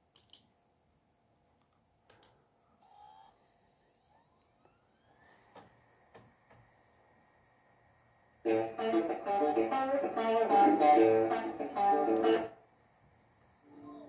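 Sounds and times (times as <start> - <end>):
faint rising whine: 3.4 - 8.4.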